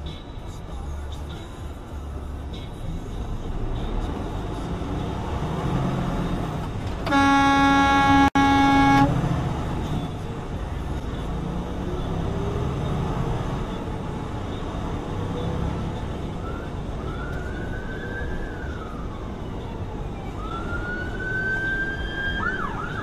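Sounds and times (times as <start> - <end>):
truck horn blast: 7.0 - 9.2.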